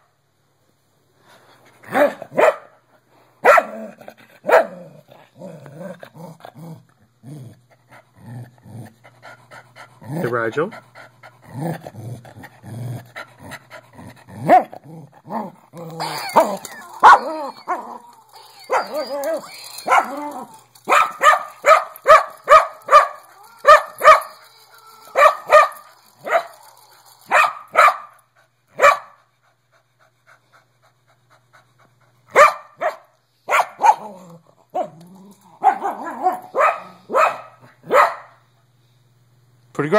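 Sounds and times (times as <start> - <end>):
dog barking: 1.9 - 2.8, 3.4 - 3.8, 4.4 - 4.8, 20.9 - 24.3, 25.2 - 26.5, 27.3 - 28.1, 28.8 - 29.2, 32.3 - 34.1, 35.6 - 38.4
dog whining and yipping: 15.9 - 27.6.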